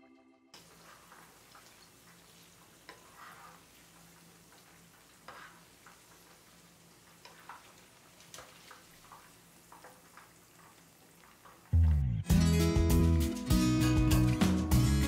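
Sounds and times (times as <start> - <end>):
food sizzling in hot oil: 0.6 - 11.8
acoustic guitar music: 11.8 - 15.0.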